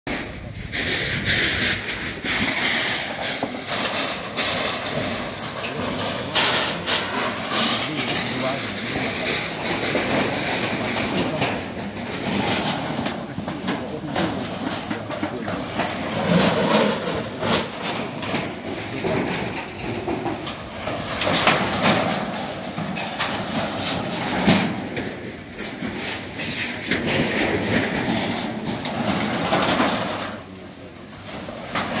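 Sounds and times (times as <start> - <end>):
metal roofing sheets clanking: 0.1 - 32.0
steady rushing noise: 0.1 - 32.0
indistinct voices: 3.1 - 21.8.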